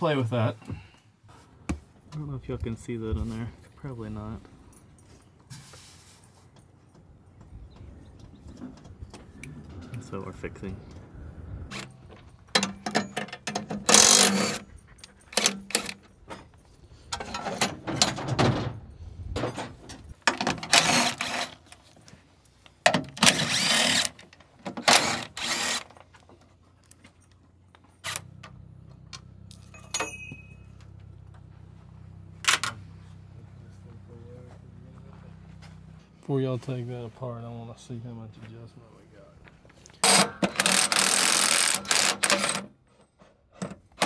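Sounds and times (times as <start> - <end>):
metal clicks and clinks: 11.7 - 17.7, 29.0 - 31.0
cordless driver spinning bolts: 12.9 - 14.6, 23.1 - 26.0, 40.0 - 42.6.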